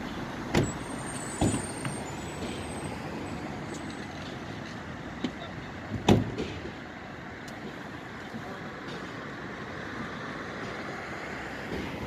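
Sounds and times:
fire engine idling: 0:03.7 - 0:11.0.

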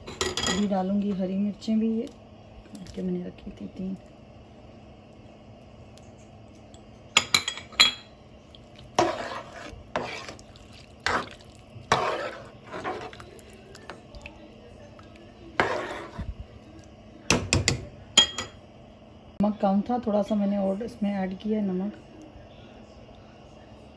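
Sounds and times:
spoon stirring in boiling water: 0:00.0 - 0:18.6
spoon knocking on cooking pot: 0:17.3 - 0:18.5.

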